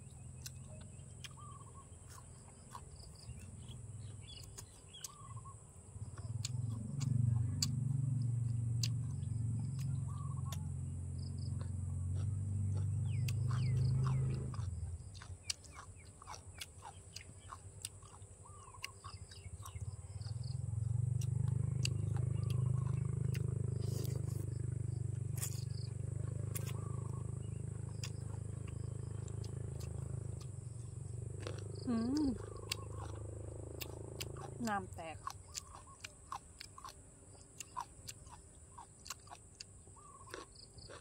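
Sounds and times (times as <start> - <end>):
close chewing and mouth clicks: 0.0 - 41.0
crunchy chewing clicks: 0.0 - 41.0.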